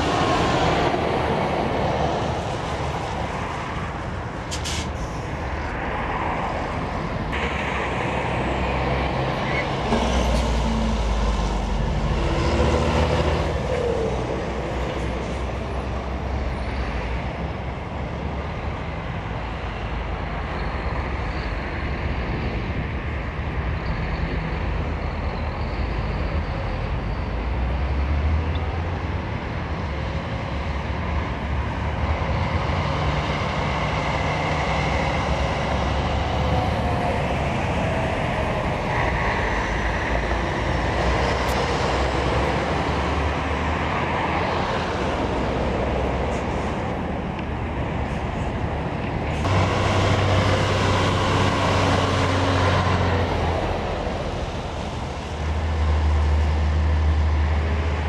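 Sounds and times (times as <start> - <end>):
lorries passing: 0.0 - 58.0
road traffic noise: 0.0 - 58.0
tyres rumbling on road: 0.0 - 58.0.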